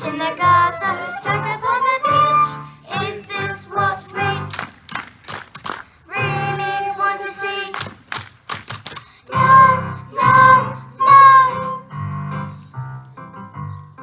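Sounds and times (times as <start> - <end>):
girls singing into microphones: 0.0 - 4.5, 6.1 - 7.8, 9.3 - 11.8
musical accompaniment: 0.0 - 4.7, 9.3 - 14.0.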